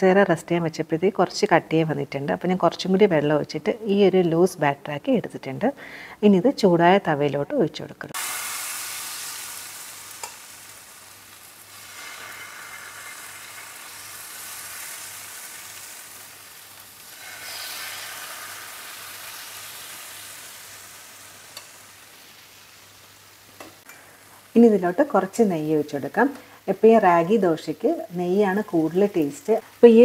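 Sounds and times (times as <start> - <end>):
batter sizzling on a hot griddle: 8.2 - 24.5.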